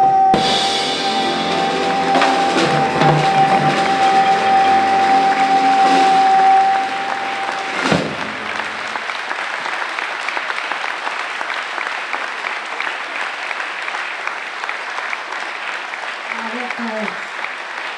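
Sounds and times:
person singing a long note: 0.0s - 7.8s
drum kit hit: 0.3s - 9.1s
jazz trio chord: 0.4s - 9.0s
audience applauding: 0.4s - 17.9s.

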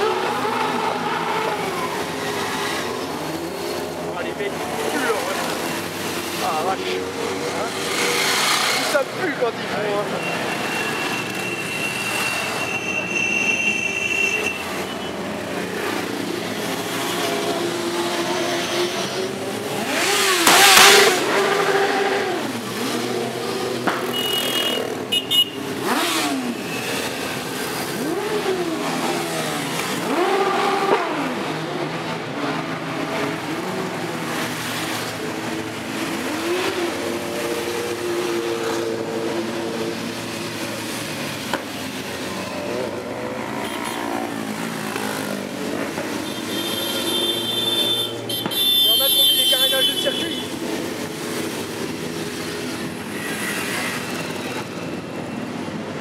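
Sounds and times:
motorcycles riding past: 14.6s - 48.3s, 50.2s - 56.0s.

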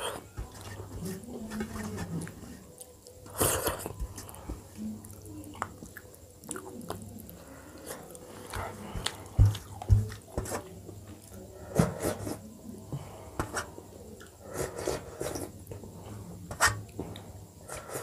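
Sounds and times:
wet eating smacks: 8.1s - 10.2s.

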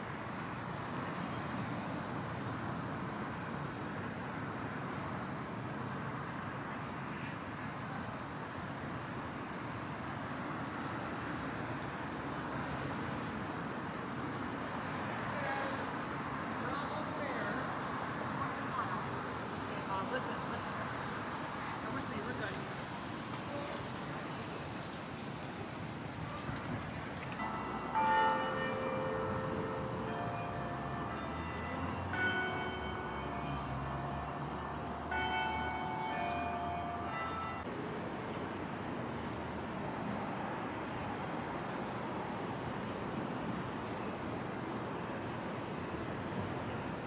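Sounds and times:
distant city traffic hum: 0.0s - 47.0s
church bells ringing: 27.4s - 37.8s.

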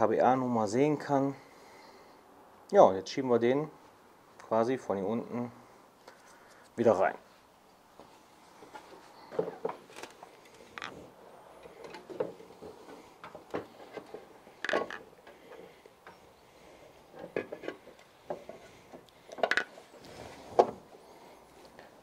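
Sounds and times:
shock absorber knocking and scraping: 8.0s - 22.0s
metal parts bumping: 11.6s - 16.2s, 17.1s - 19.9s.

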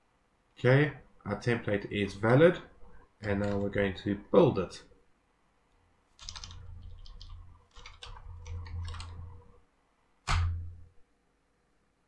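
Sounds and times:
keyboard typing: 3.2s - 3.9s, 6.2s - 9.6s.

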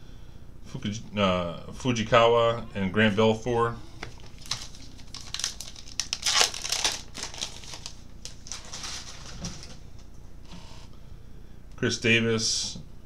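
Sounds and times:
foil wrapper tearing and crinkling: 4.2s - 9.8s.

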